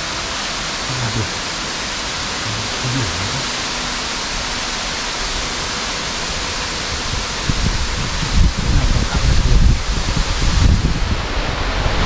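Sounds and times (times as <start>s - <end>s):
steady hiss: 0.0s - 12.0s
wind buffeting on microphone: 6.2s - 12.0s.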